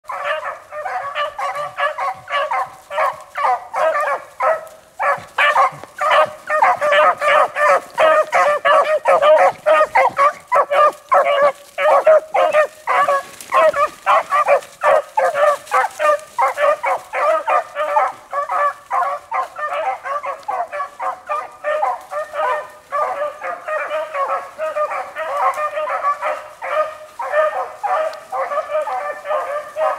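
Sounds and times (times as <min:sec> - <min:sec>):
hounds baying: 0:00.0 - 0:29.9.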